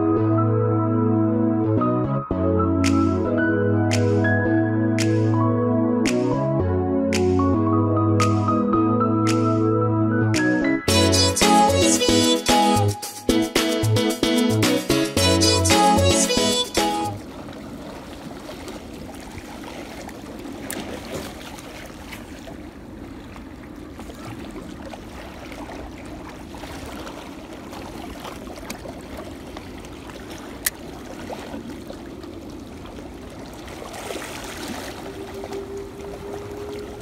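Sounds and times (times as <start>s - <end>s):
seawater lapping: 15.4s - 37.0s.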